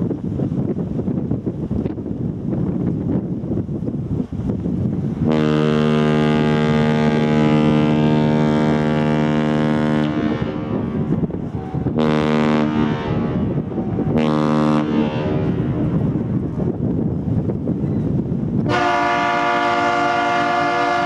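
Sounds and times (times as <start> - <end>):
ship air horn blasts: 5.2 - 16.3, 18.6 - 21.0.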